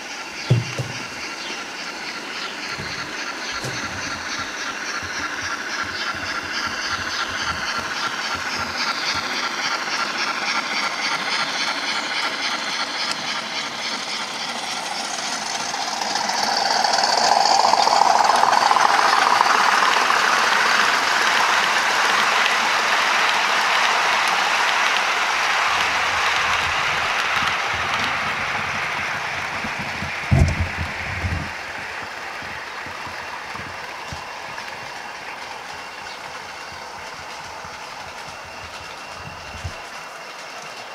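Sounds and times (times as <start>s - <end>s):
locomotive motor whine: 0.0s - 40.9s
wheels rattling on rails: 0.0s - 40.9s
short thump: 0.5s - 1.2s.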